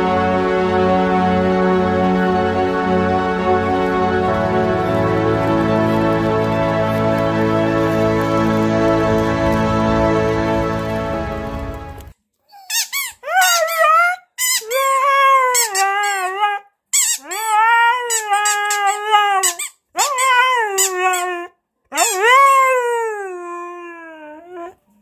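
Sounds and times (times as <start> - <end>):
dog howling and whining: 12.6 - 24.8.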